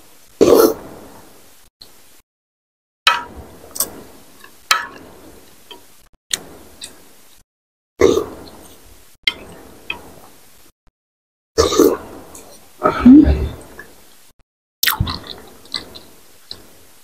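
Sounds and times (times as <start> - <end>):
eating sounds: 14.8 - 16.7.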